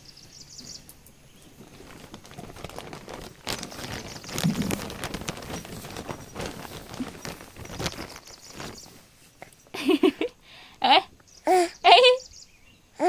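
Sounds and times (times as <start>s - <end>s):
baby rustling on blanket: 1.5s - 9.6s.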